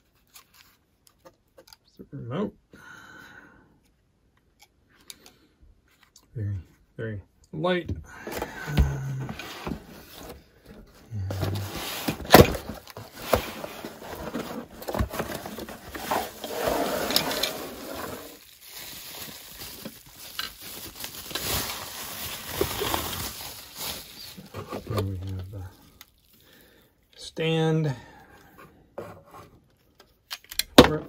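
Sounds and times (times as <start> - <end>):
cardboard and bubble wrap rustling: 8.2 - 26.4.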